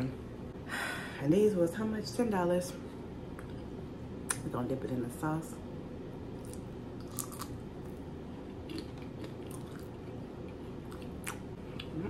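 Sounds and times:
chewing food: 0:06.4 - 0:12.0.

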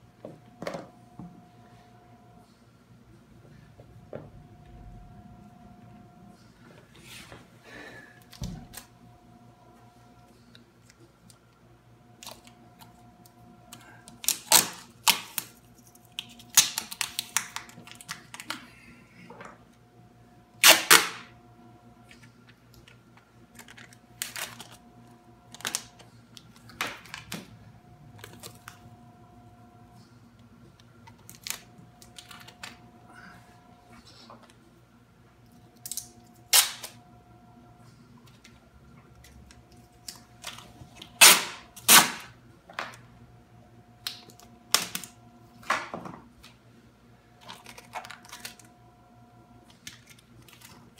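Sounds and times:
packing tape ripping off roll: 0:14.1 - 0:18.5, 0:20.6 - 0:21.3, 0:23.5 - 0:24.8, 0:35.9 - 0:37.0, 0:40.0 - 0:42.4, 0:44.1 - 0:45.2, 0:47.4 - 0:48.7.

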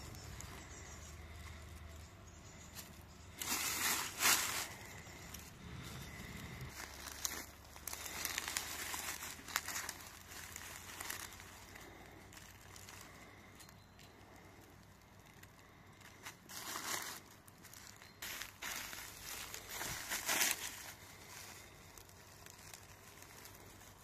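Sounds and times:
dry leaves rustling: 0:00.0 - 0:24.0
twigs snapping: 0:00.0 - 0:24.0.

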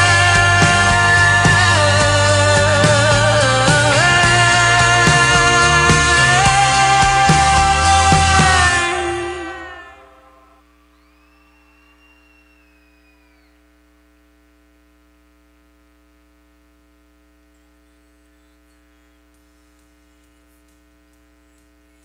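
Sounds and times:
faint electrical mains hum: 0:08.9 - 0:22.0.

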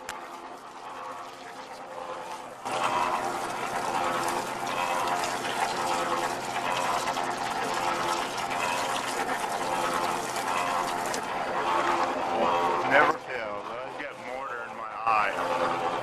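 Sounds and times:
water spraying into mixer drum: 0:00.0 - 0:16.0.

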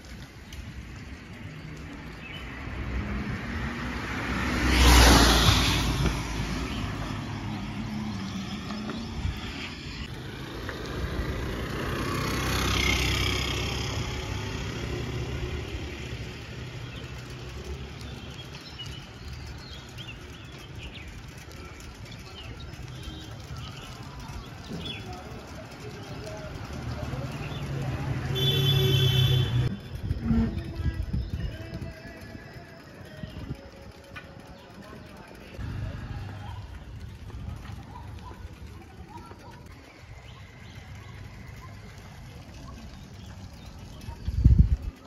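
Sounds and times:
distant traffic hum: 0:00.0 - 0:31.2, 0:32.1 - 0:45.0
vehicles passing close by: 0:00.0 - 0:45.0.

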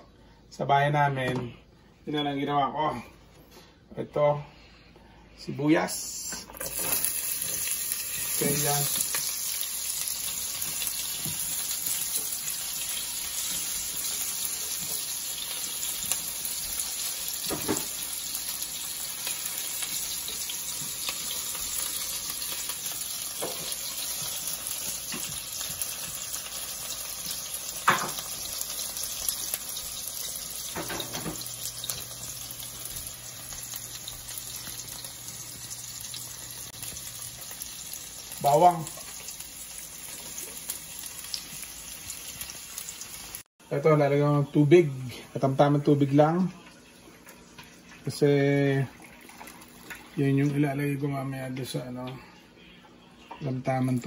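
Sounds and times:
onions sizzling in oil: 0:06.6 - 0:43.5.

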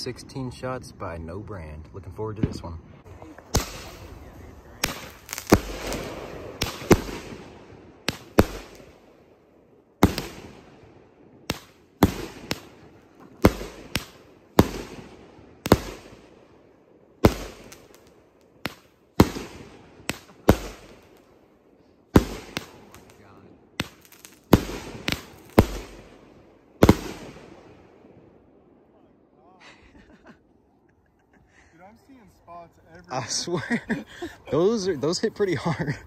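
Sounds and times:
firework bursting bangs: 0:02.4 - 0:28.8.

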